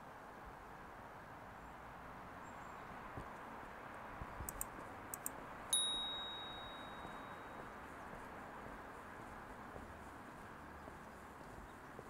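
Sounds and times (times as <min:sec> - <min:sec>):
faint clicks: 0:04.4 - 0:05.4
high-pitched metallic ding: 0:05.8 - 0:07.4.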